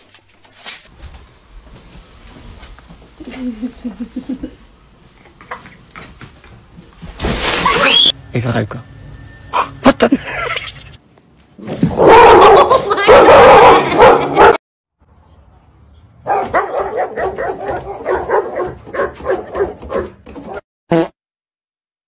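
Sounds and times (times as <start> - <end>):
dogs barking and yelping: 11.9 - 14.6, 16.2 - 20.6.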